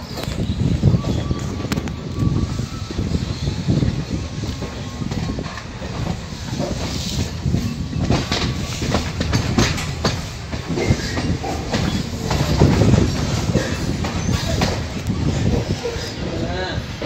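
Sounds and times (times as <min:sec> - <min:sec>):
train wheels rumbling on track: 0:00.0 - 0:17.0
wheels clattering over rail joints: 0:03.0 - 0:17.0.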